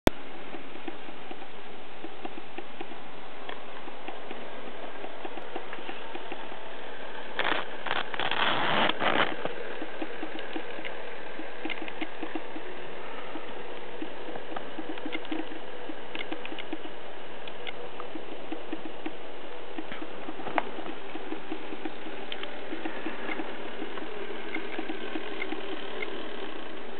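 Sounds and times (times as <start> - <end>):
model train wheels ticking: 7.3 - 26.9.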